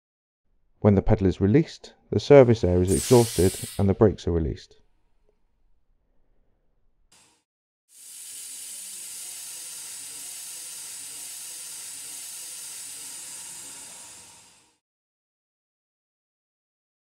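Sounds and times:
air brake hissing: 0:02.9 - 0:03.9.

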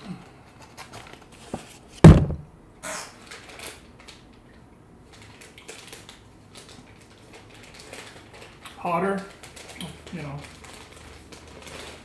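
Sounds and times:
heavy thump on a desk: 0:02.0 - 0:02.5.

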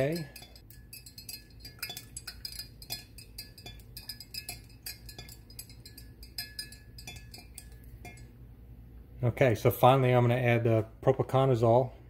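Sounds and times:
rod clinking against glass jar: 0:00.0 - 0:08.4.

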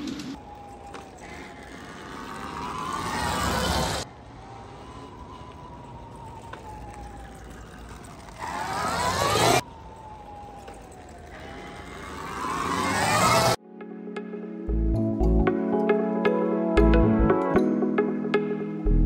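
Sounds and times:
electric motorbike motor whining: 0:00.0 - 0:04.1, 0:04.7 - 0:13.6.

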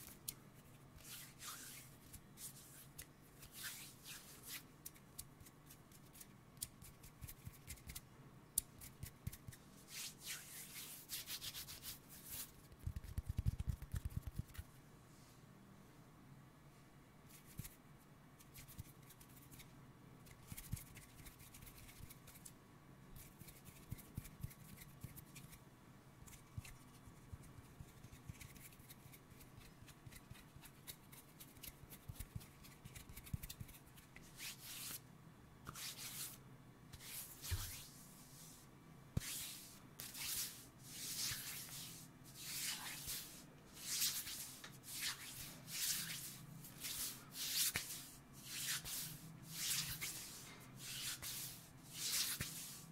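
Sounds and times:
palms swishing together: 0:39.2 - 0:52.9.

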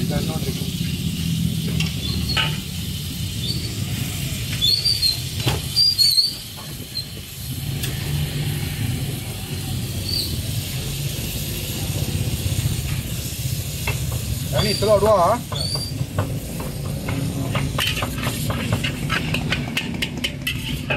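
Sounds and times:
noodles sizzling in a wok: 0:00.0 - 0:20.9
metal spatula scraping a wok: 0:00.8 - 0:08.7, 0:13.9 - 0:20.9.

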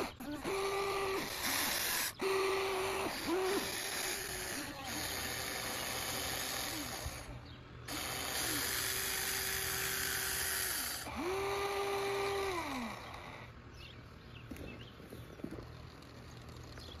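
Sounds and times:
electric motors whining: 0:00.0 - 0:17.0.

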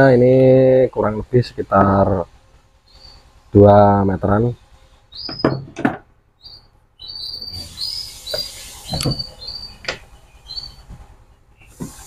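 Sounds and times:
high bird chirps: 0:02.8 - 0:03.3, 0:05.0 - 0:05.7, 0:06.4 - 0:10.9
knocks of tool on wooden bench: 0:05.3 - 0:06.1.

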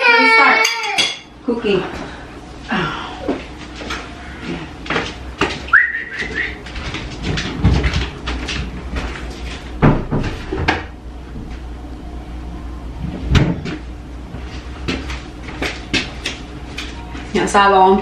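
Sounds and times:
washing machine door and basket knocking: 0:07.2 - 0:08.2, 0:09.8 - 0:10.9, 0:13.3 - 0:13.8.

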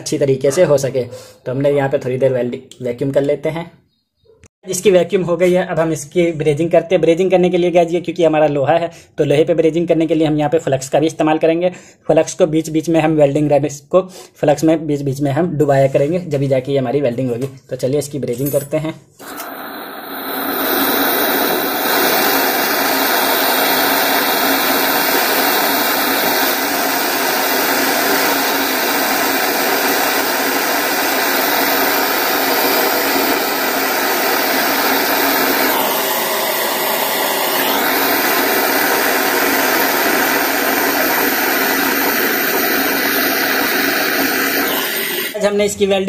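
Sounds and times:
gas torch hissing: 0:19.2 - 0:45.4.

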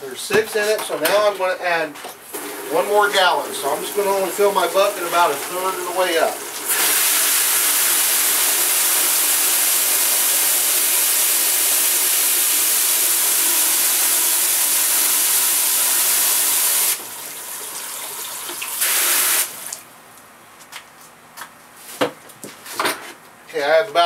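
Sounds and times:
water running into plastic bucket: 0:02.3 - 0:19.8.

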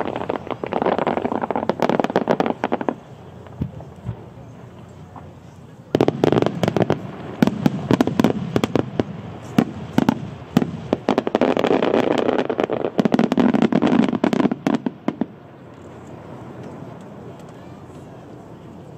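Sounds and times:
fireworks bangs: 0:00.0 - 0:17.6
fireworks crackling: 0:00.0 - 0:18.9.

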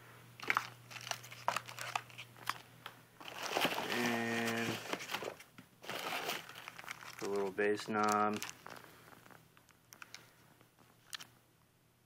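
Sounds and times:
plastic wrapping crinkling: 0:00.4 - 0:02.6, 0:03.2 - 0:10.3.

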